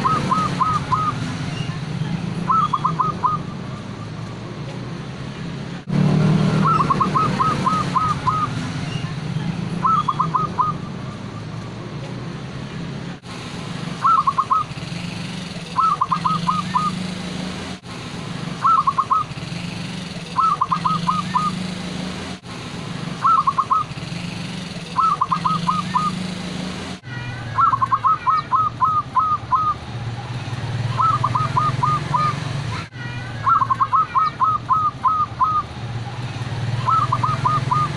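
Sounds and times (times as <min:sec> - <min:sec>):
dove cooing: 0:00.0 - 0:01.2, 0:02.5 - 0:03.4, 0:06.6 - 0:08.5, 0:09.8 - 0:10.8, 0:14.0 - 0:14.7, 0:15.8 - 0:17.0, 0:18.6 - 0:19.3, 0:20.4 - 0:21.6, 0:23.2 - 0:23.9, 0:25.0 - 0:26.2, 0:27.6 - 0:29.8, 0:31.0 - 0:32.4, 0:33.4 - 0:35.7, 0:36.8 - 0:37.9.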